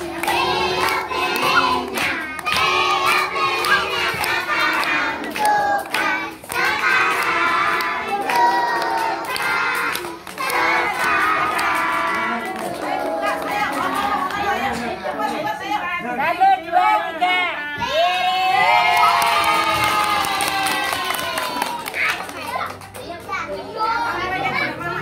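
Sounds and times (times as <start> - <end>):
hands clapping: 0.0 - 14.9, 18.9 - 23.6
children and women singing: 0.0 - 15.8, 23.4 - 25.0.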